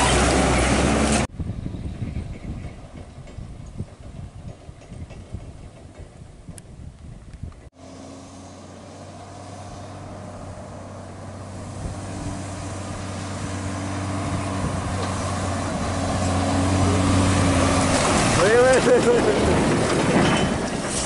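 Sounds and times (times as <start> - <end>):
truck diesel engine running: 0.0 - 1.3, 7.8 - 21.0.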